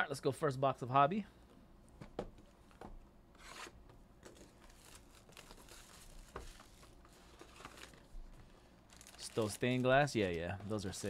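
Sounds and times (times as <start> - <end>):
wrapping crinkling and tearing: 3.4 - 11.0.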